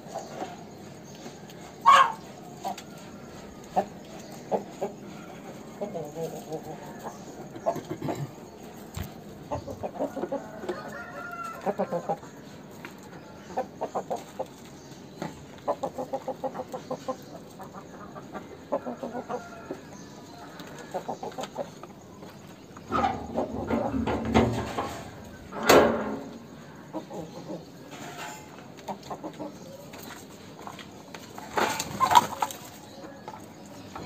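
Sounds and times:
rooster clucking: 1.8 - 12.3, 22.8 - 29.8, 31.3 - 32.8.

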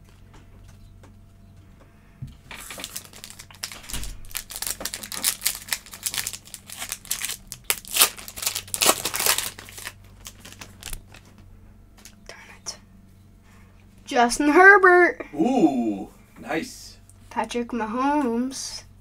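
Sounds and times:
foil wrapper crinkling and tearing: 2.5 - 11.4.

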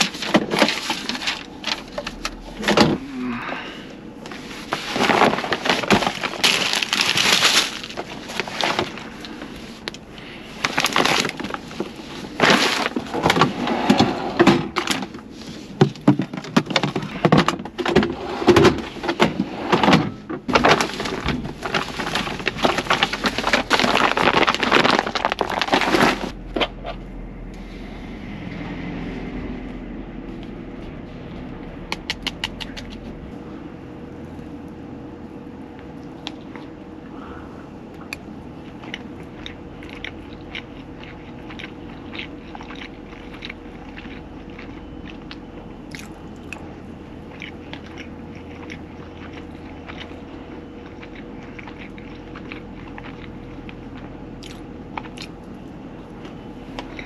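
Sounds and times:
plastic bag rustling: 0.0 - 3.3, 4.3 - 14.1, 20.5 - 26.6
low hum: 0.0 - 57.0.

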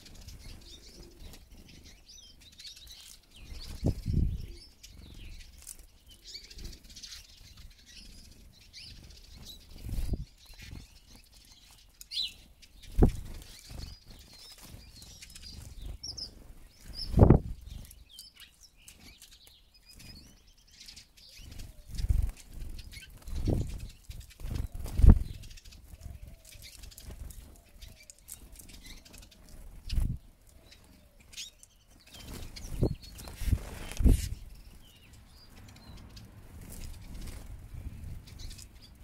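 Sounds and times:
high twittering bird calls: 0.0 - 39.0
bird wings fluttering: 3.0 - 4.4, 12.8 - 16.2, 21.5 - 30.2, 32.1 - 34.5, 36.5 - 38.7.

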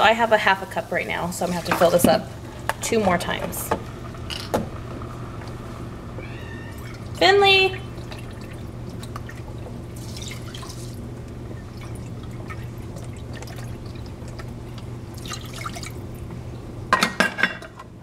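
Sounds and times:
liquid trickling and splashing: 7.8 - 16.2.

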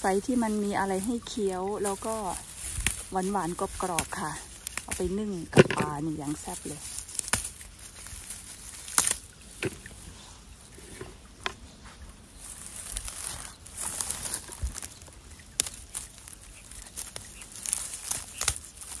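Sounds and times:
dry undergrowth rustling and crackling: 0.0 - 19.0
sharp snaps of plant stems: 2.0 - 9.8, 15.5 - 19.0.

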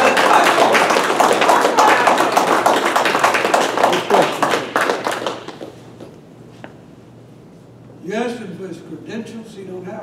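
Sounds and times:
audience clapping: 0.0 - 6.2.

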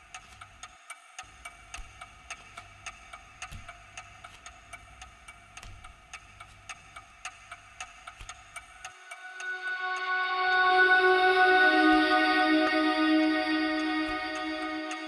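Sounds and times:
clock ticking: 0.0 - 11.2.

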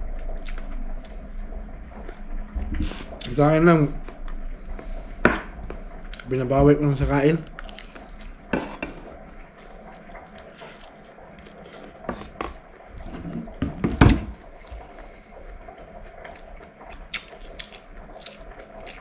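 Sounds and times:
spoon scraping food containers: 8.6 - 9.1.

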